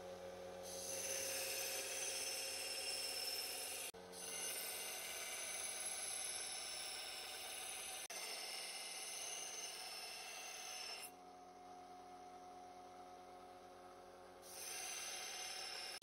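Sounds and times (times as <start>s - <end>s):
belt sander grinding metal: 0.7s - 11.1s.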